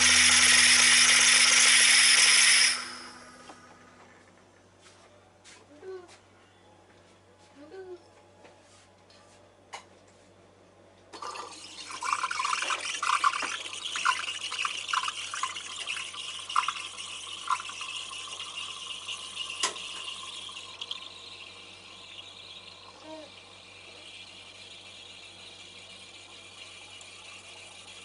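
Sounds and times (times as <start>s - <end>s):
steam wand hissing into milk: 0.0s - 3.4s.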